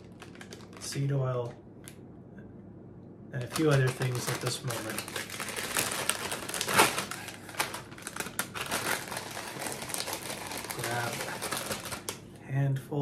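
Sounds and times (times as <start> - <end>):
plastic snack bag crinkling: 0.0 - 1.1, 3.4 - 12.2.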